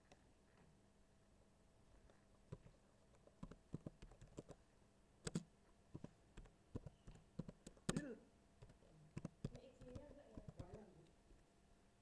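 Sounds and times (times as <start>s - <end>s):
faint computer keyboard typing: 2.0s - 4.6s, 5.2s - 11.2s.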